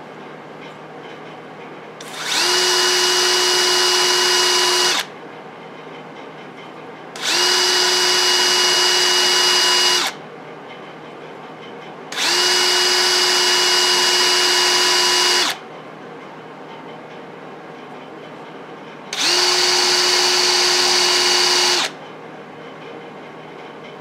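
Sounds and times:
electric drill whining: 2.0s - 5.1s, 7.2s - 10.2s, 12.2s - 15.6s, 19.2s - 22.0s.

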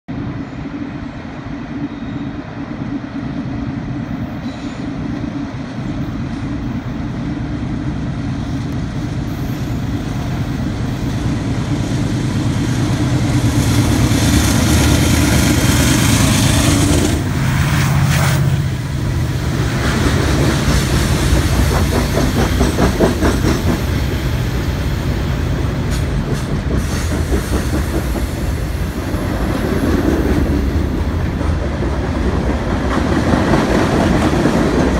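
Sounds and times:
diesel locomotive engine drone: 0.1s - 34.9s
train wheels clacking on rails: 19.2s - 34.9s.

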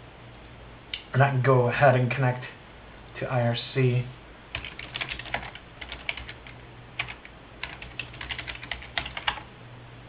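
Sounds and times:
steady low hum: 0.0s - 10.0s
typing on computer keyboard: 4.6s - 9.5s.

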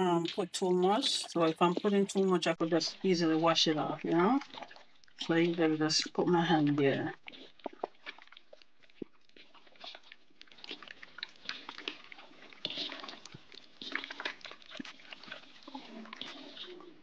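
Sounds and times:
wet squelching of chicken by hand: 6.5s - 17.0s.

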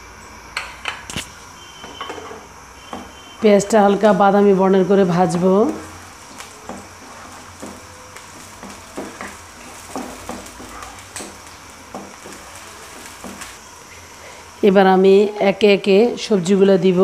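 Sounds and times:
onions sizzling in hot oil: 1.2s - 16.0s
spatula scraping and knocking pan: 5.3s - 13.6s.

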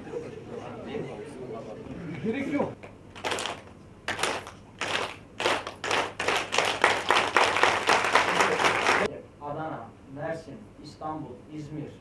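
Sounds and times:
audience clapping in unison: 3.2s - 9.1s.

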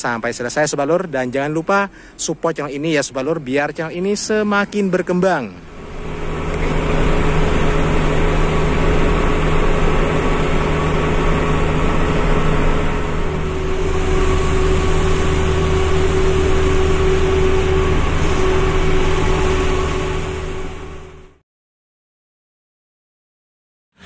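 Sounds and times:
bus engine drone: 0.0s - 21.4s
road noise: 0.0s - 21.4s
held hum: 3.8s - 21.4s.

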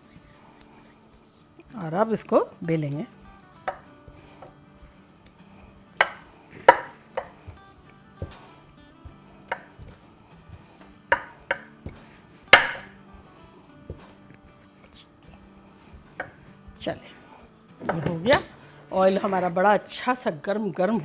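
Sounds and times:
rolling pin rolling dough: 3.7s - 19.6s.

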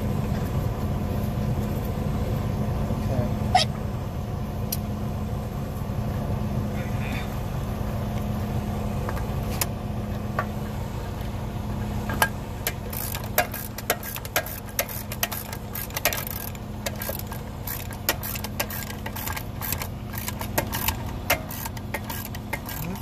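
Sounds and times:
steady low hum: 0.0s - 23.0s
socket ratchet wrench clicking: 12.2s - 23.0s.

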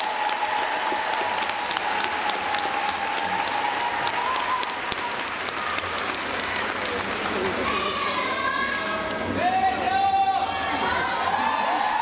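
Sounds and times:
audience applauding: 0.0s - 8.9s, 11.4s - 12.0s.

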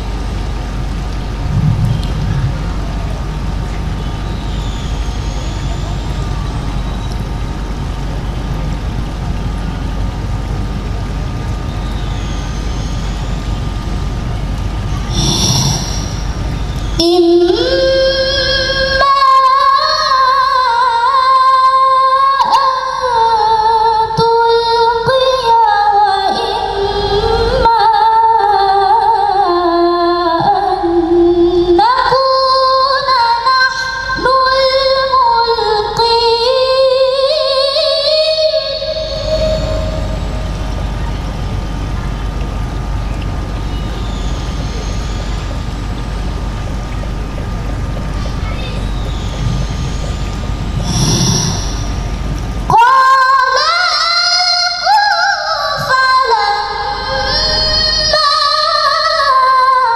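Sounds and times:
low background noise: 0.0s - 59.9s
woman reciting melodically: 17.0s - 40.4s, 52.7s - 59.9s.

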